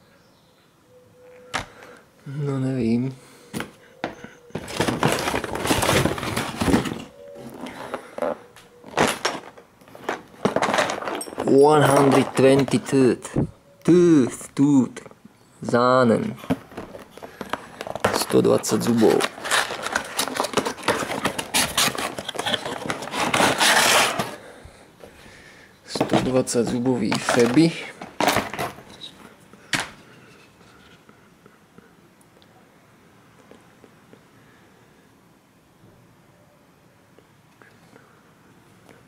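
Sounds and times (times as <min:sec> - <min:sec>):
cardboard scraping and rustling: 0:04.5 - 0:12.9, 0:16.3 - 0:24.4, 0:26.0 - 0:29.2
belt scraping out of box: 0:16.6 - 0:24.4.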